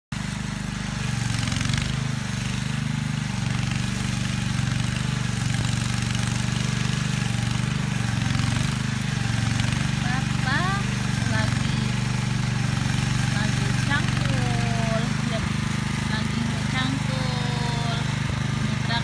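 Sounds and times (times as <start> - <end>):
small tractor engine running: 0.1 - 19.0.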